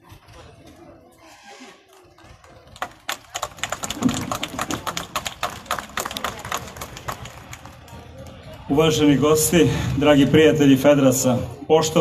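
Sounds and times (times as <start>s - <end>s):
audience applauding: 2.1s - 8.7s.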